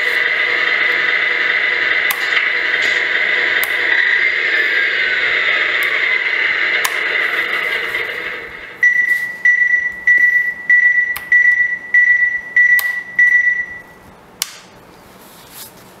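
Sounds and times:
steady rushing sound: 0.0 - 8.8.

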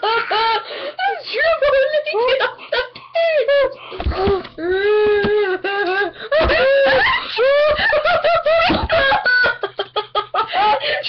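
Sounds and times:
girls laughing in squeals: 5.4 - 11.0.

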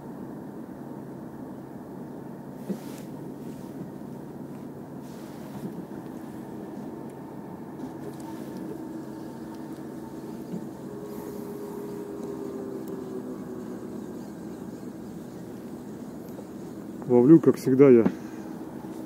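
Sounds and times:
engine drone: 0.0 - 19.0
faint hiss: 2.5 - 19.0
held tones: 7.8 - 19.0.

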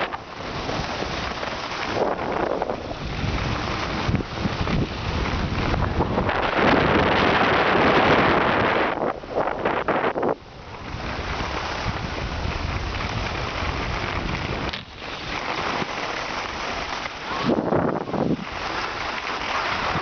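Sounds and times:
sliding over packed snow: 0.0 - 20.0
wind buffeting microphone: 0.0 - 20.0.

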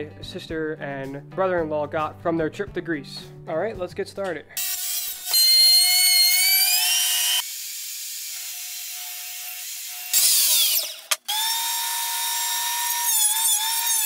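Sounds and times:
saw cutting and winding down: 4.6 - 14.0.

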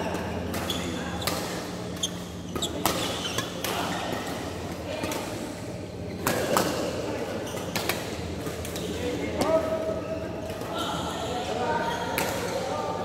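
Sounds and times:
shoes squeaking on court floor: 0.6 - 4.2.

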